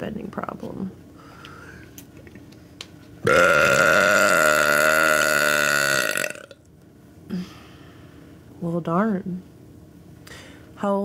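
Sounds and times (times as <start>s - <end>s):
woman belching: 3.2s - 6.6s.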